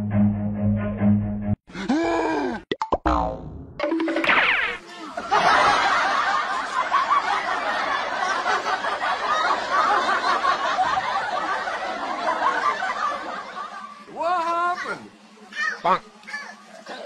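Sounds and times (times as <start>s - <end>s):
crowd laughing: 4.8s - 14.3s, 16.6s - 17.0s.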